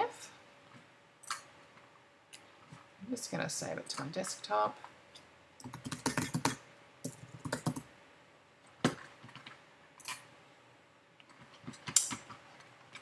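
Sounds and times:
computer keyboard typing: 5.6 - 7.9.

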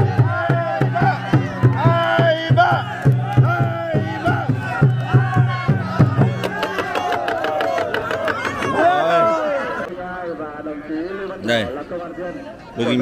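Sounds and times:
barrel drum beaten with sticks: 0.0 - 9.0
crowd shouting and cheering: 0.0 - 10.4.

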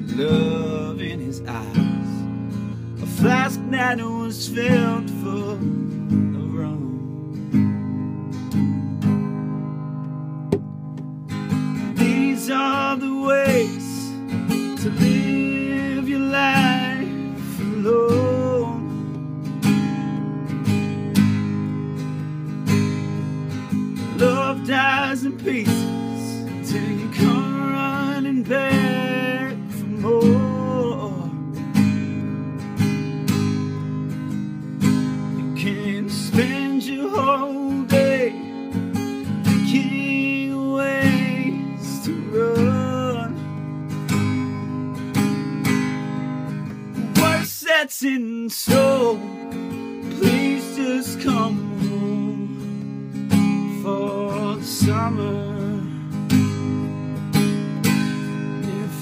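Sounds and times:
man singing: 0.0 - 2.3, 3.0 - 7.4, 11.9 - 19.0, 24.0 - 31.5, 35.4 - 38.6, 39.4 - 43.5, 47.0 - 56.4, 58.4 - 59.0
strummed acoustic guitar: 0.0 - 59.0.

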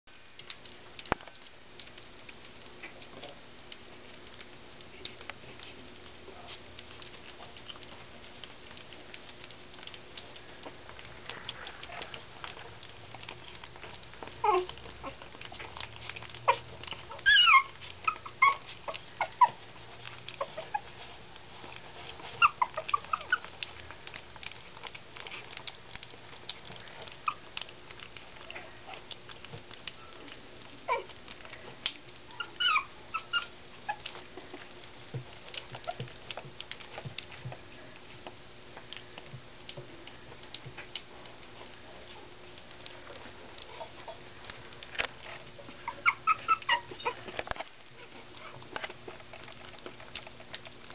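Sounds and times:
puppies chewing and lapping: 0.1 - 50.9
puppies squeaking and whimpering: 11.0 - 30.2, 30.9 - 31.5, 32.3 - 34.6, 35.4 - 37.2, 43.6 - 50.6.

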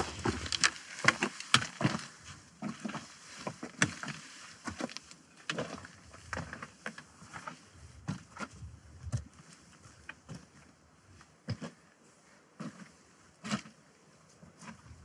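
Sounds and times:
boots stepping on rock: 0.0 - 2.1
trekking poles clicking on stone: 0.0 - 2.1.

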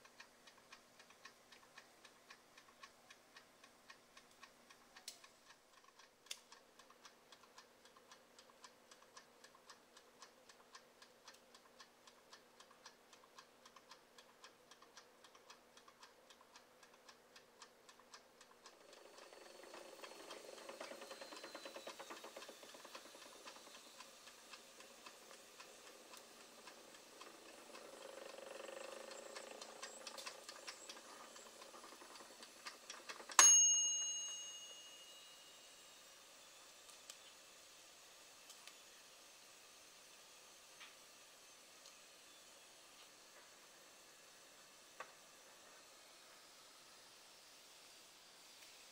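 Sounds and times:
mechanical timer ticking: 0.0 - 35.8
timer bell ding: 33.4 - 35.7.

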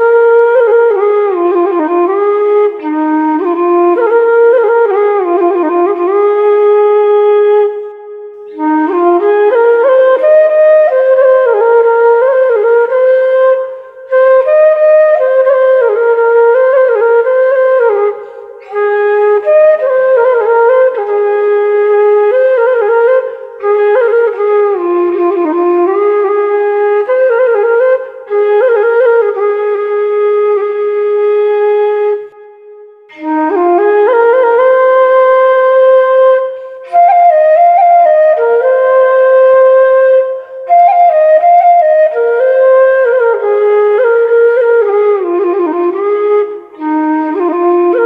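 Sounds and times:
flute-like woodwind melody: 0.0 - 48.0.

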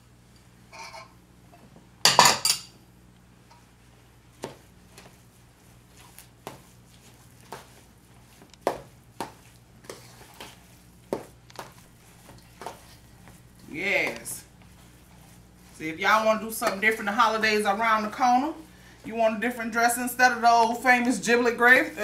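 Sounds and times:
dishes clattering: 2.0 - 2.7.

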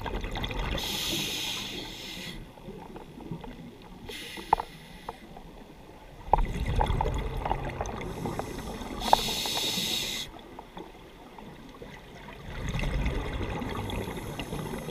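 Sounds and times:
regulator hissing inhalation: 0.8 - 2.5, 4.1 - 5.2, 8.2 - 10.3.

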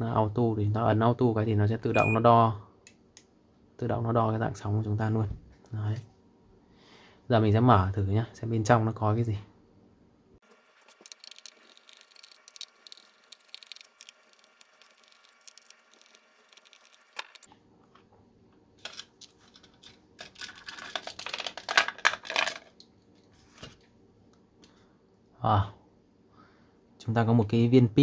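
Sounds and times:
screwdriver ticks and scrapes: 10.8 - 17.5
plastic case clicking and rattling: 18.8 - 22.7.

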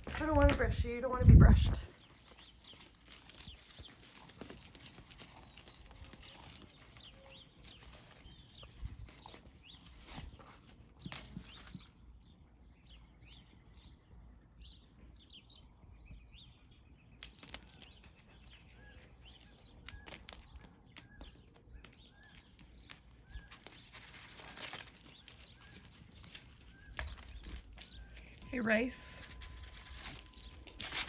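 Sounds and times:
rustling of plastic and cardboard: 1.9 - 11.9, 17.3 - 31.0
faint bird chirps: 2.0 - 31.0.

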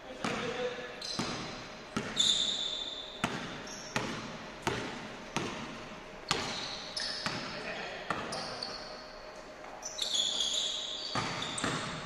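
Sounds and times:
sneakers squeaking on floor: 0.1 - 12.0
basketball bouncing on wooden floor: 0.2 - 2.5, 3.2 - 7.5, 8.1 - 8.4, 11.1 - 12.0.

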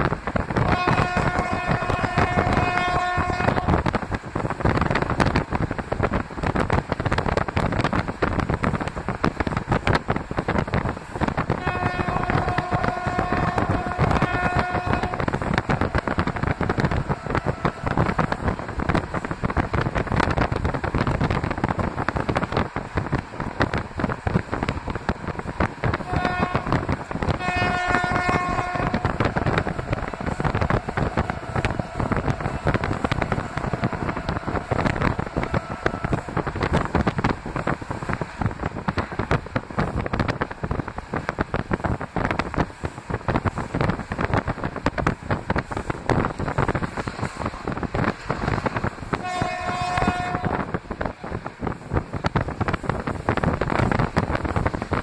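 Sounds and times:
moving train running noise: 0.0 - 55.0
locomotive horn blasts: 0.6 - 3.8, 11.6 - 18.1, 26.0 - 36.3, 49.1 - 50.8.

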